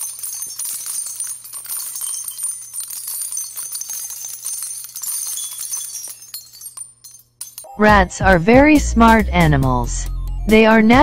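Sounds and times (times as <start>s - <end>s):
tiny metallic jingling: 0.0s - 8.0s.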